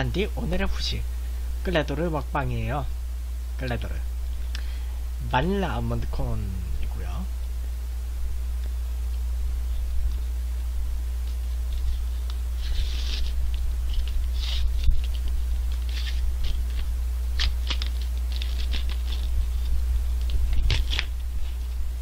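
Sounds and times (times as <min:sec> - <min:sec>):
low electrical hum: 0:00.0 - 0:22.0
wrapper crinkling and tearing: 0:11.7 - 0:21.7.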